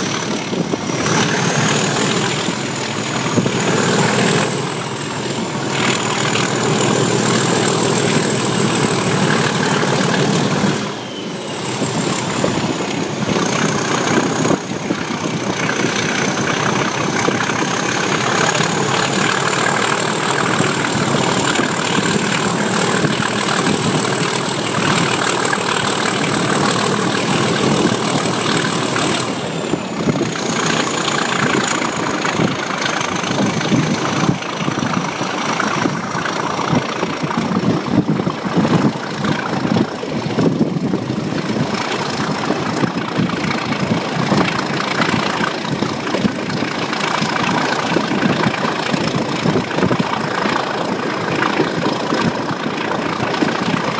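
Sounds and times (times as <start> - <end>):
diesel locomotive engine working hard: 0.0 - 53.9
moving train running noise: 0.0 - 53.9
turbocharger whistle: 5.7 - 12.4.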